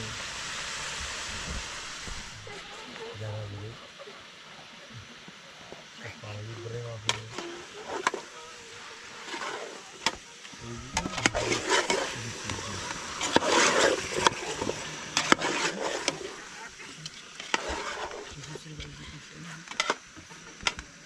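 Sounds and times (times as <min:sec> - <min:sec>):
spoon scraping and stirring: 0:11.0 - 0:16.4, 0:17.0 - 0:18.4.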